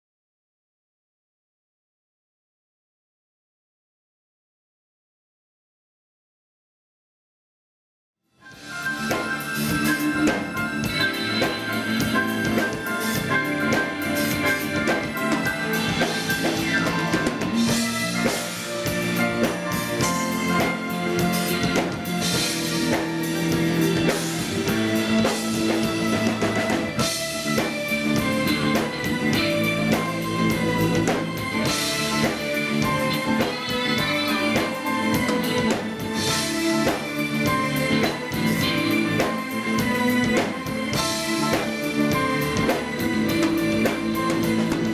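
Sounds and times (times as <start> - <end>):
guitar: 8.4 - 44.9
grand piano: 8.5 - 44.9
jazz fusion band playing: 8.5 - 44.9
drum kit beat: 8.6 - 44.9.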